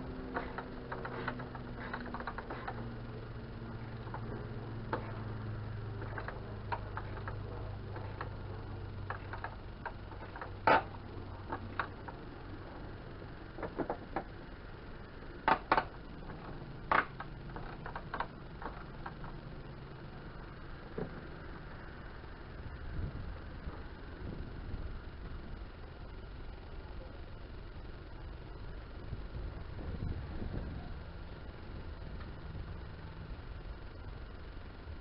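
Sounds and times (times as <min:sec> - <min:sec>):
ratchet wrench clicking: 0:00.1 - 0:03.3.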